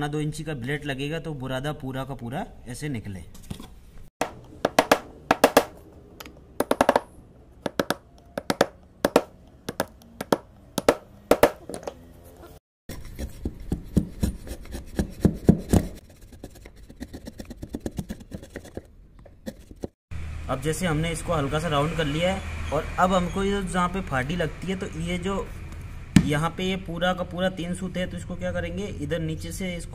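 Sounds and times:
hammer tapping chisel into wood: 0:04.2 - 0:05.8, 0:06.6 - 0:11.9.

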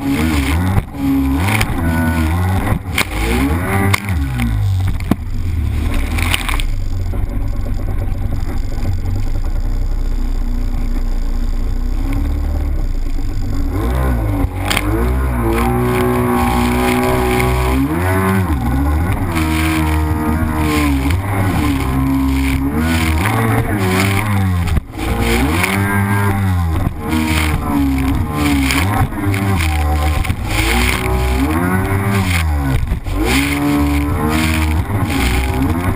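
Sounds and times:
jet ski engine revving: 0:00.0 - 0:35.9
rushing water and spray: 0:14.4 - 0:35.9.

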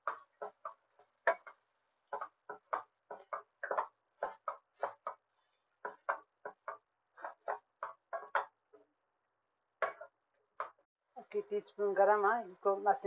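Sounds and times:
wooden spatula scraping a wok: 0:00.0 - 0:08.5.

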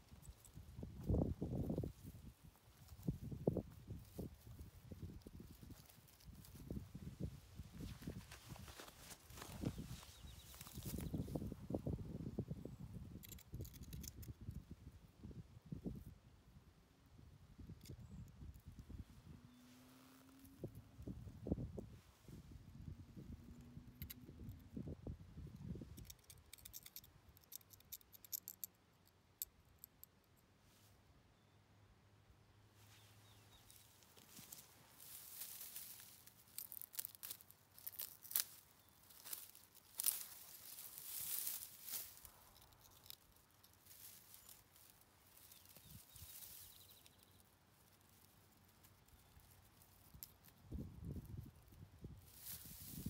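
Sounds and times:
rustling of dry straw: 0:00.0 - 0:12.0, 0:18.9 - 0:23.0, 0:32.7 - 0:53.0
faint high chirping: 0:09.3 - 0:13.7, 0:43.9 - 0:47.6.

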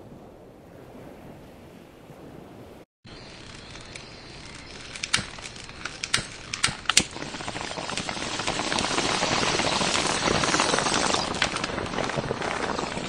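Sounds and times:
wind buffeting microphone: 0:00.0 - 0:13.0
sharp clicks: 0:03.3 - 0:11.8.

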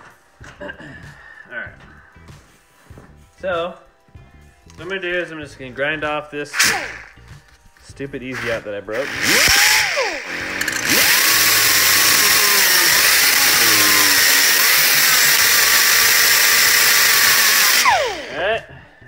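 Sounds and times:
angle grinder grinding: 0:06.5 - 0:18.6.

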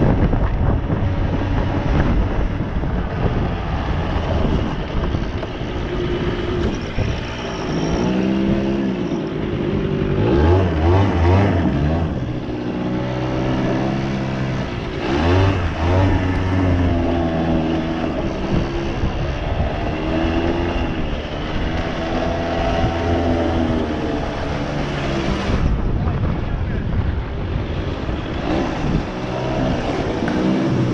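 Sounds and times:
two-stroke engine revving: 0:05.7 - 0:25.8, 0:28.3 - 0:30.9.

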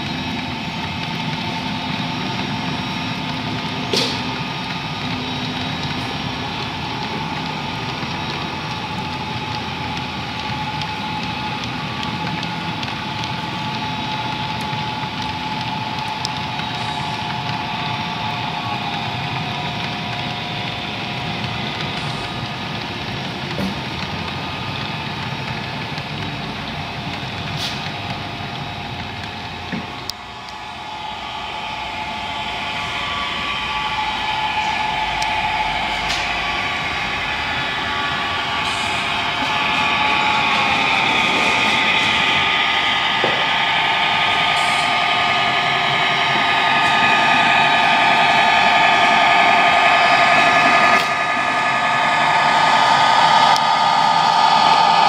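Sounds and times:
model wagons rolling on track: 0:00.0 - 0:50.2
thin diesel engine drone from speaker: 0:29.8 - 0:55.0.

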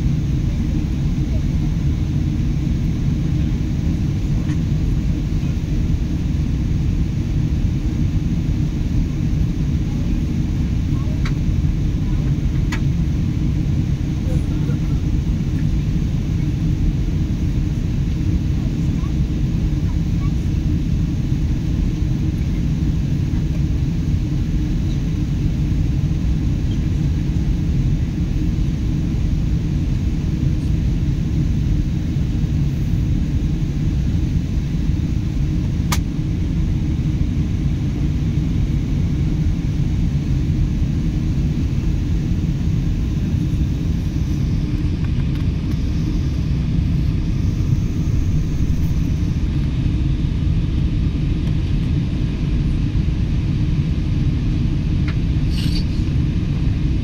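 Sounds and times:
airliner cabin rumble: 0:00.0 - 0:57.0.

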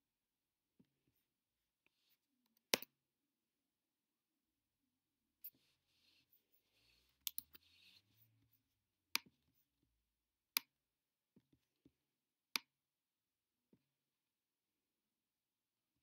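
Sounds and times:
computer mouse clicks: 0:07.2 - 0:07.7.

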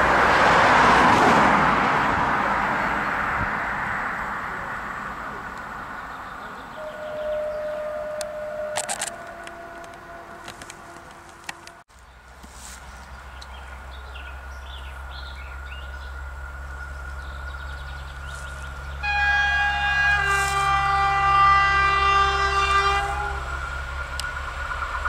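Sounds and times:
diesel locomotive engine droning: 0:00.0 - 0:25.0
locomotive horn blast: 0:06.6 - 0:11.8, 0:19.0 - 0:23.8.

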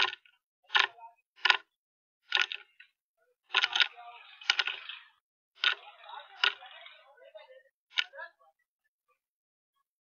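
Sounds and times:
clock ticking: 0:00.0 - 0:02.8, 0:05.6 - 0:06.7.

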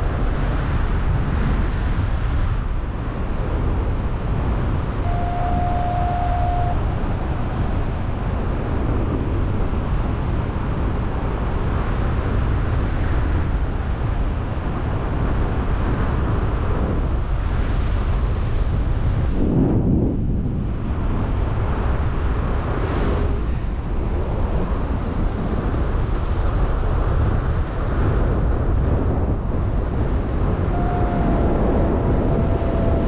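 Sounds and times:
strong wind buffeting microphone: 0:00.0 - 0:33.0
steady tone: 0:04.9 - 0:08.1, 0:30.6 - 0:33.0.

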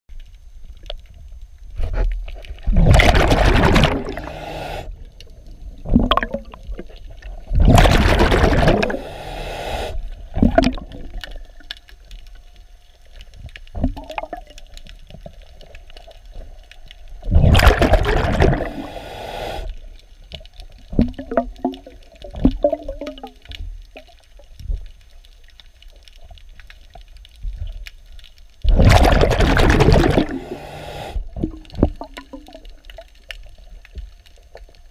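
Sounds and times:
underwater exhaled bubbles: 0:02.0 - 0:12.1, 0:13.3 - 0:24.9, 0:28.6 - 0:34.9.

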